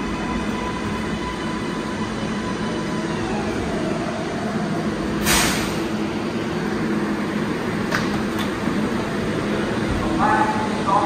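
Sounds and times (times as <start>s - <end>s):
subway train motors humming: 0.0s - 11.0s
air brakes hissing: 5.2s - 6.0s.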